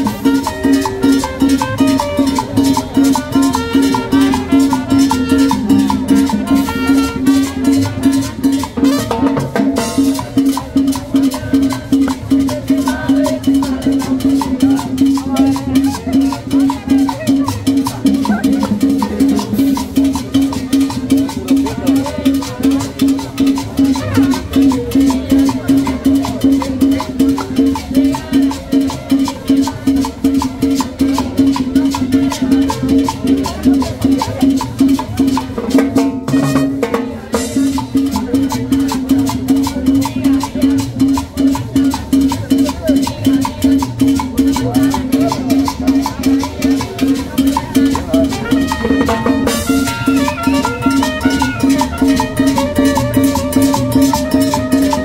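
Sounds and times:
trumpet melody: 0.0s - 10.0s, 36.0s - 37.6s, 48.1s - 55.0s.

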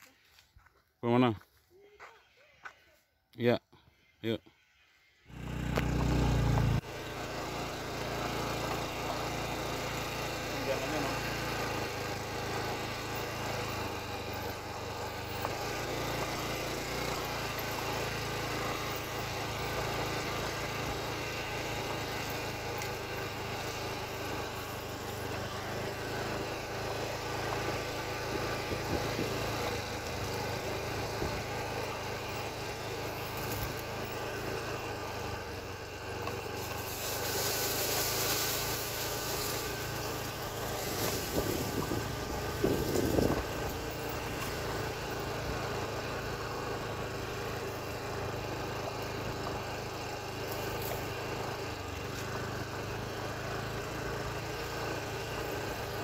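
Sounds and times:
motorcycle engine running: 5.2s - 56.0s
burst of hiss: 36.7s - 39.9s.

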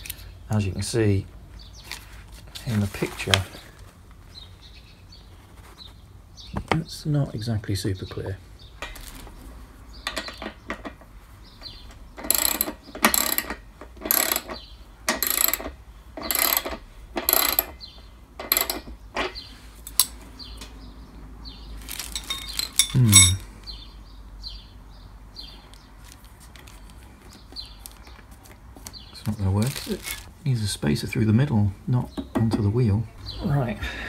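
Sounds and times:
metallic clatter: 8.8s - 20.7s, 21.8s - 23.5s
ratchet wrench ratcheting: 12.2s - 17.8s, 18.4s - 20.1s, 21.9s - 23.4s.

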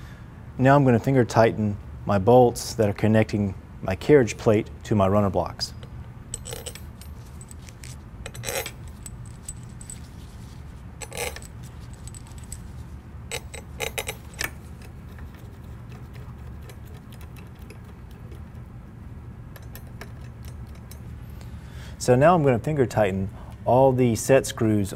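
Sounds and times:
low steady hum: 0.0s - 24.9s
screws clinking on metal plate: 6.3s - 10.1s, 11.0s - 12.7s.

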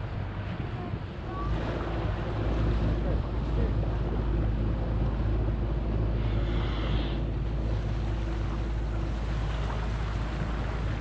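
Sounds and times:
small boat motor running: 0.0s - 11.0s
water against hull: 0.0s - 11.0s.

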